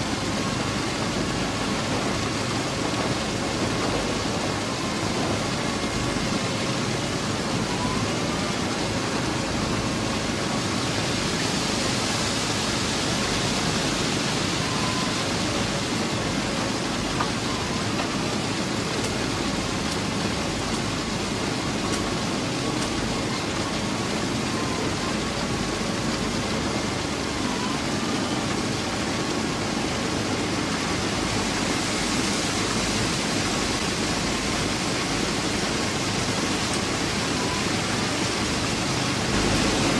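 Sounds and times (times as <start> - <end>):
machinery drone: 24.4 - 39.9.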